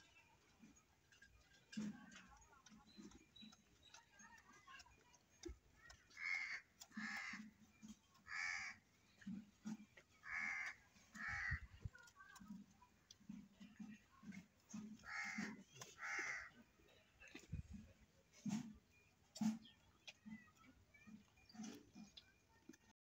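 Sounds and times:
crows cawing: 0:06.1 - 0:07.5, 0:08.2 - 0:08.8, 0:10.2 - 0:11.7, 0:15.0 - 0:16.6.

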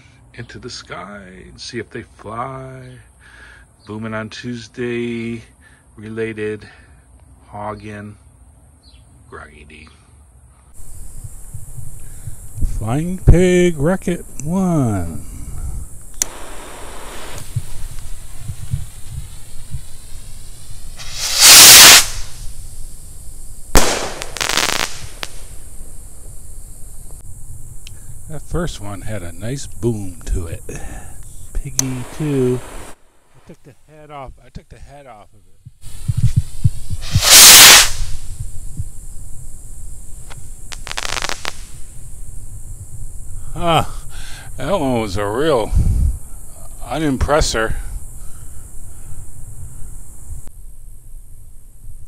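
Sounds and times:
firework crackle: 0:16.1 - 0:27.2, 0:31.8 - 0:33.6, 0:35.8 - 0:42.4
firework burst boom: 0:16.2 - 0:22.7, 0:23.7 - 0:26.0, 0:31.8 - 0:33.0, 0:36.6 - 0:38.6, 0:40.7 - 0:42.0
rocket launching whoosh: 0:20.9 - 0:22.7, 0:23.7 - 0:25.7, 0:31.8 - 0:33.0, 0:37.0 - 0:38.3, 0:40.7 - 0:41.9.

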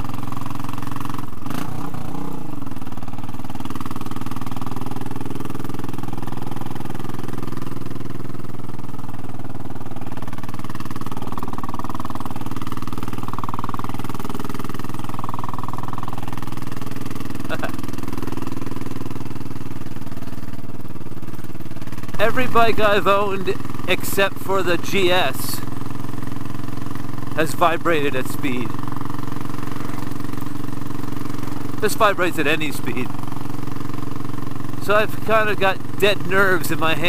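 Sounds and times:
motorcycle engine running: 0:00.0 - 0:37.0.

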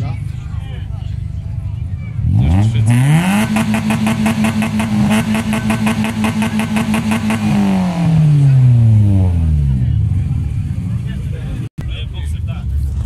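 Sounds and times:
car engine revving: 0:01.4 - 0:11.6.

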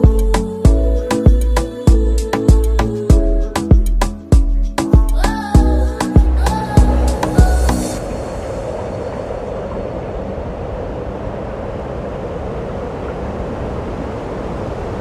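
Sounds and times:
wind buffeting microphone: 0:05.6 - 0:15.0.

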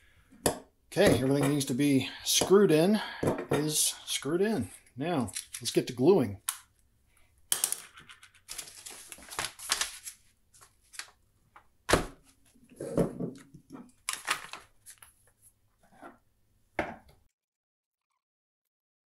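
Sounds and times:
paper bag rustling: 0:08.5 - 0:10.2.

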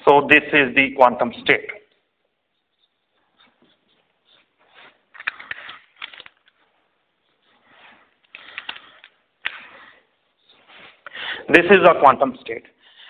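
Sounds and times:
scratchy writing strokes: 0:02.2 - 0:05.6
small clicks: 0:08.2 - 0:09.6.

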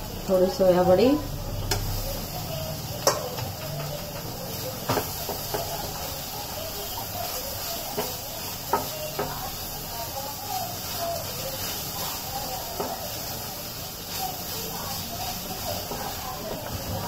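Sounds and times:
vegetables sizzling in a pan: 0:00.0 - 0:17.0
wooden spatula knocking pan: 0:03.0 - 0:06.1, 0:07.9 - 0:09.4.

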